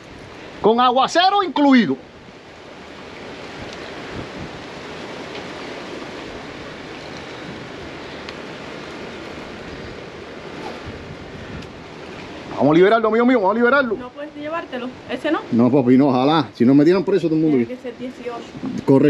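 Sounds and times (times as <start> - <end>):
rushing water: 0.0 - 19.0
wind: 0.0 - 19.0
faint ticks: 3.6 - 4.0, 8.1 - 8.4.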